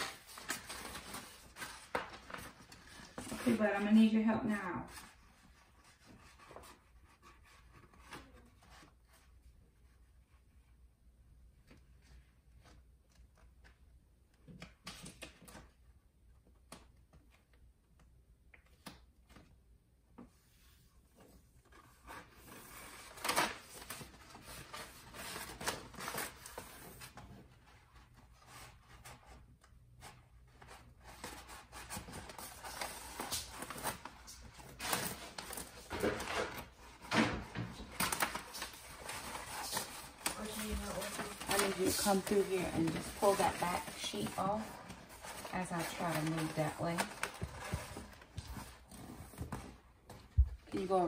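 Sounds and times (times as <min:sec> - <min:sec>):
wallpaper rustling against wall: 0:00.0 - 0:17.8, 0:18.6 - 0:51.0.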